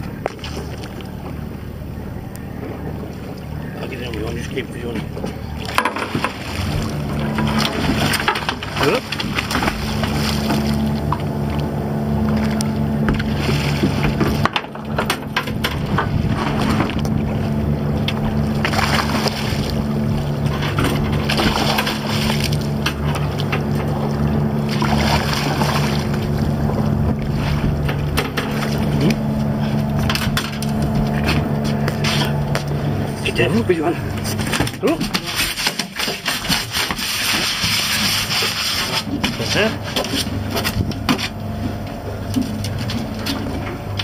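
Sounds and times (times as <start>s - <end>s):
boat engine humming: 0.0s - 44.0s
water splashing against hull: 0.0s - 44.0s
knocks against boat: 4.9s - 11.6s, 12.3s - 17.2s, 20.4s - 24.0s, 24.7s - 32.8s.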